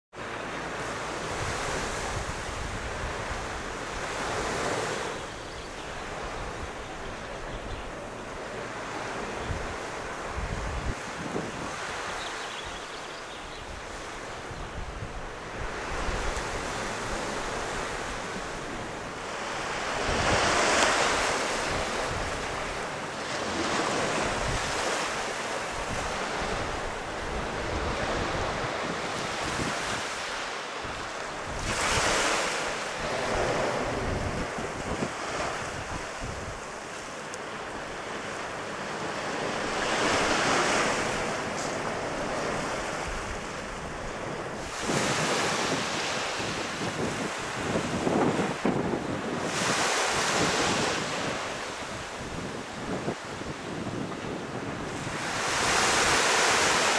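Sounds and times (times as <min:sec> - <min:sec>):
sea surf washing ashore: 0:00.1 - 0:56.9
wind buffeting microphone: 0:08.9 - 0:37.0, 0:39.2 - 0:56.9.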